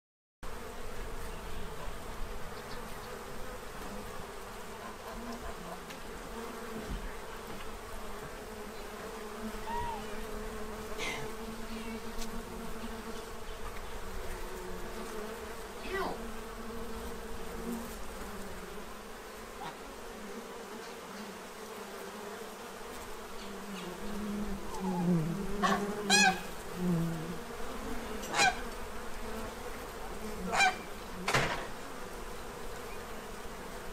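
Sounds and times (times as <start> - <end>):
bees buzzing: 0.5 - 33.9
geese honking: 24.7 - 26.5, 28.2 - 28.6, 30.5 - 30.9.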